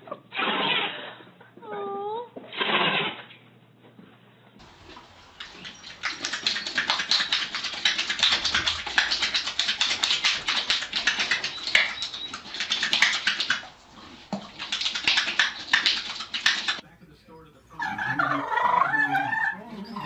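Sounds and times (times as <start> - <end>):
horse clicks and clatters: 4.6 - 16.8.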